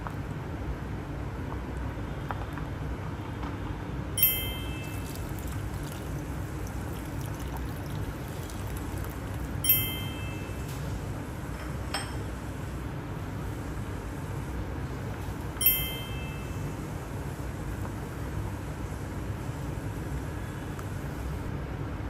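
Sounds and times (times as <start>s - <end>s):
steady low hum: 0.0s - 22.0s
sharp clinks with ring: 4.2s - 5.0s, 15.6s - 16.6s
gravy simmering: 4.8s - 9.6s
water pouring into a pan: 4.9s - 9.6s.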